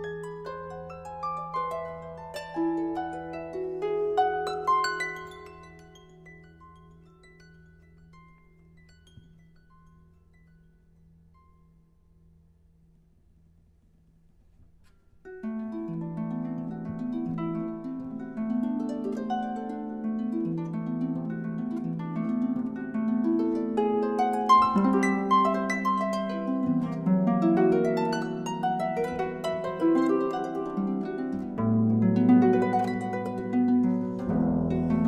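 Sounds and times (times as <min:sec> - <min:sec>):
harp plucked notes: 0:14.8 - 0:35.0.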